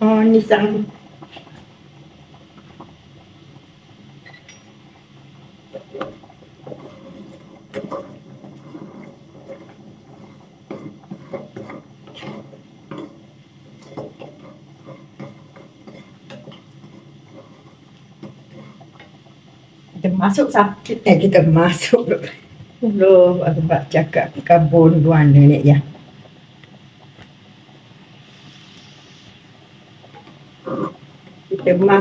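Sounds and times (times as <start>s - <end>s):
spatula scraping and knocking a pan: 5.8s - 13.2s.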